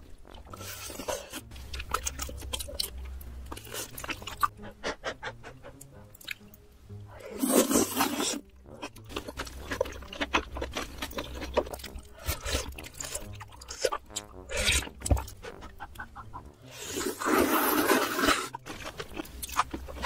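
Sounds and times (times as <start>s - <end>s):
wet chewing: 0.0s - 6.6s, 7.3s - 20.0s
loud slurp: 16.8s - 18.6s.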